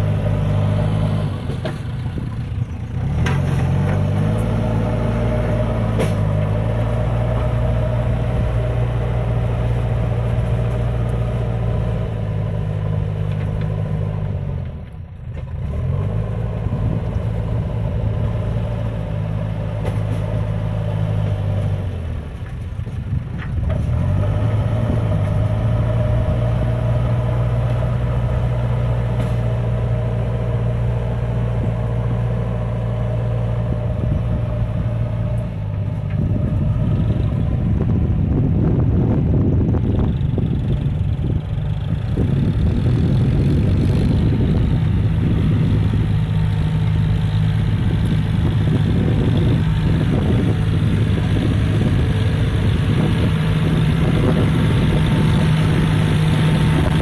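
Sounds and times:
diesel engine revving: 0.0s - 57.0s.

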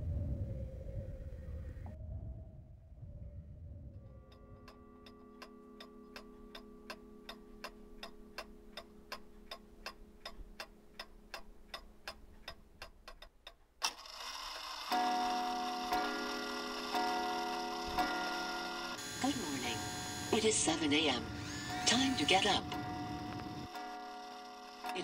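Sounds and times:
faint low hum: 0.0s - 12.8s
clock ticking: 4.7s - 13.8s, 14.8s - 25.0s
alarm clock bells ringing: 14.7s - 25.0s.

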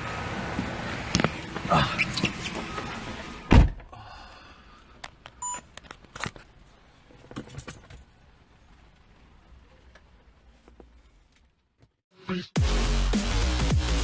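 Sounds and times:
car door slamming: 3.5s - 3.9s
short beep: 5.4s - 5.7s.

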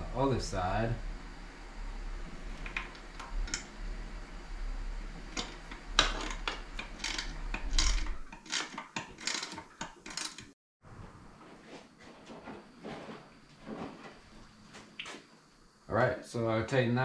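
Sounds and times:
clicks and knocks of hand tools: 5.4s - 10.5s.

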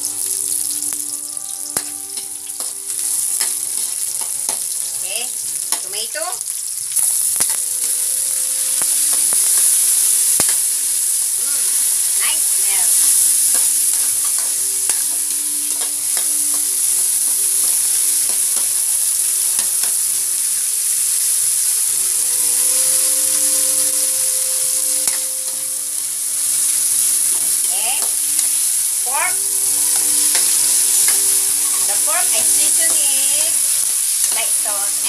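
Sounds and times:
vegetables sizzling in oil: 0.0s - 35.0s
utensil scraping a pan: 1.8s - 4.8s.

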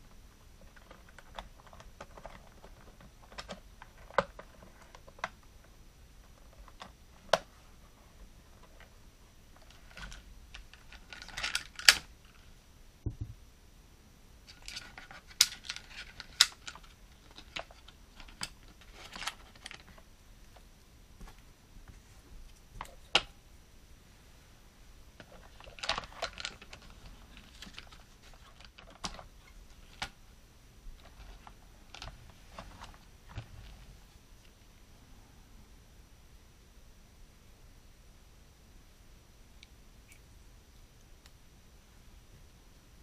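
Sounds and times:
plastic toys clicking and knocking: 0.6s - 5.5s, 9.6s - 12.1s, 14.5s - 20.0s, 25.2s - 30.2s.

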